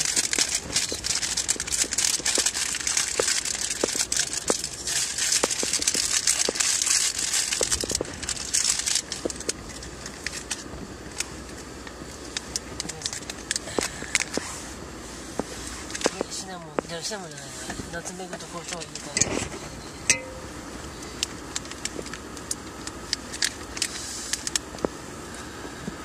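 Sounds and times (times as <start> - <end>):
plastic packaging crinkling: 0.0 - 14.4.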